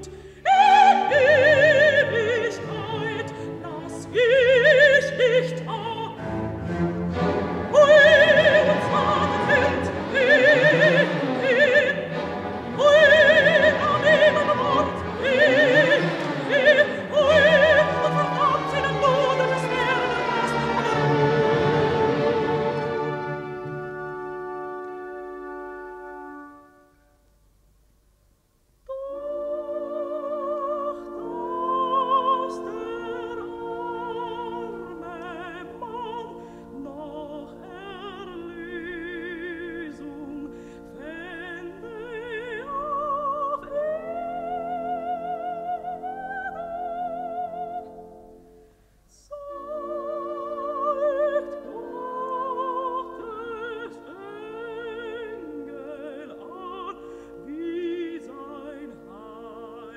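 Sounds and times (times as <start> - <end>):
operatic soprano singing: 0.0 - 26.5, 28.9 - 48.2, 49.1 - 59.9
orchestra playing: 0.6 - 27.0.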